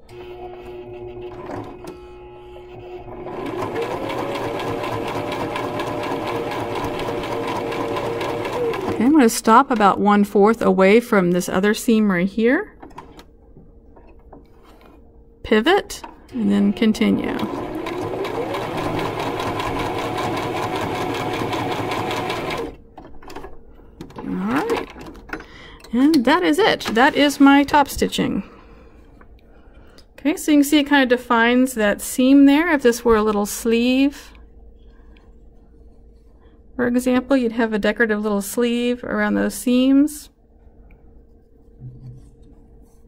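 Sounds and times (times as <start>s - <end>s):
sewing machine stitching: 3.0s - 9.2s, 16.8s - 22.8s.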